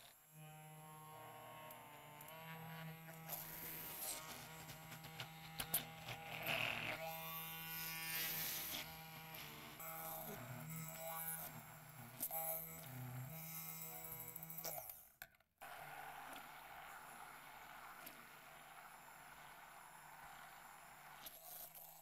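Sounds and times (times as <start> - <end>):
stick blender running in glass bowl: 0.0 - 15.0, 15.6 - 22.0.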